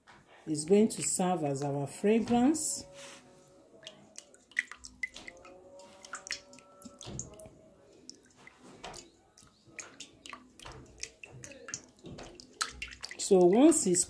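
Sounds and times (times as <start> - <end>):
wet squishing of liquid: 3.8 - 14.0.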